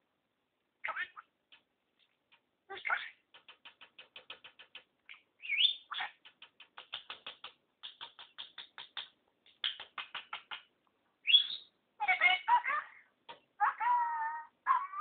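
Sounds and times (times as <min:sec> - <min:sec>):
budgerigar chattering clicks: 0:02.3 - 0:10.7
budgerigar rising chirps: 0:05.1 - 0:06.2, 0:11.2 - 0:12.5.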